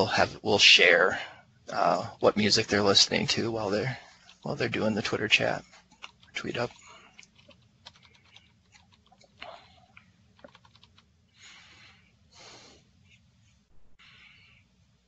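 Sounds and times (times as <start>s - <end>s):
typing on computer keyboard: 6.0s - 6.4s, 7.2s - 9.5s, 10.4s - 11.1s.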